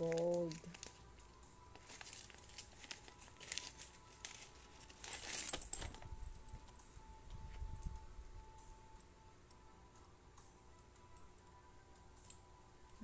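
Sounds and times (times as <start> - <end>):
plastic wrapping crinkling: 0.0 - 6.8.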